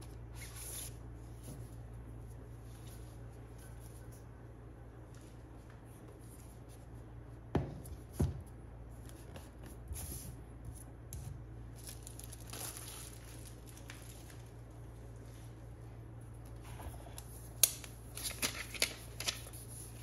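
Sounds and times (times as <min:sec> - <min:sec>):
packaging rustling and scraping: 0:11.8 - 0:14.5.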